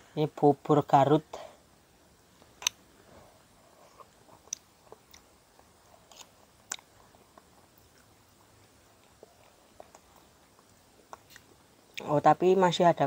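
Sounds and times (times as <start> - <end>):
soft mouth noises: 2.4 - 12.1.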